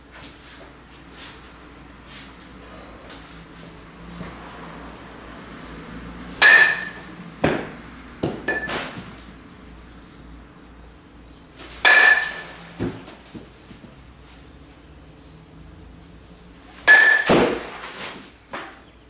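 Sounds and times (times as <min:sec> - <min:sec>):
metal bat hitting ball: 0:06.4 - 0:09.0, 0:11.8 - 0:13.1, 0:16.8 - 0:17.8
ball landing thuds: 0:06.4 - 0:09.2, 0:11.7 - 0:13.5, 0:16.9 - 0:18.7.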